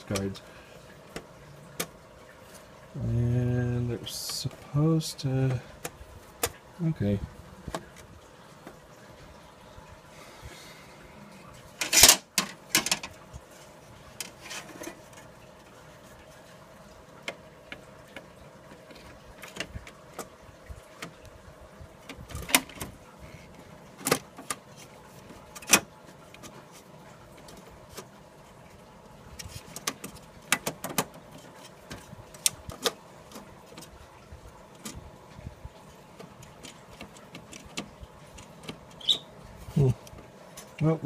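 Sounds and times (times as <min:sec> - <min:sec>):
metal panel clicks and knocks: 0:11.8 - 0:13.1, 0:29.7 - 0:33.0.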